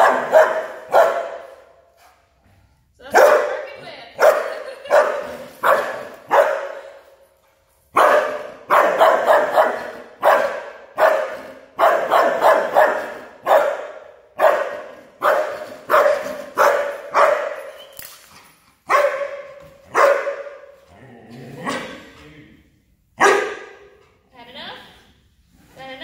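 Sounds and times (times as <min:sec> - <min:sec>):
dog barking with echo: 0:00.0 - 0:01.6, 0:03.1 - 0:03.6, 0:04.2 - 0:06.9, 0:08.0 - 0:17.7, 0:18.9 - 0:20.7, 0:23.2 - 0:23.9.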